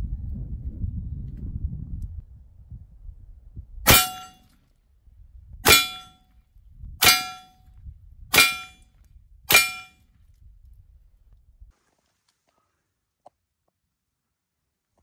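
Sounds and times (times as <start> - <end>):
air pistol shots: 3.9 - 4.4, 5.7 - 6.1, 7.0 - 7.5, 8.3 - 8.8, 9.5 - 9.9
steel target clanging: 3.9 - 4.4, 5.7 - 6.2, 7.0 - 7.5, 8.3 - 8.8, 9.5 - 9.9.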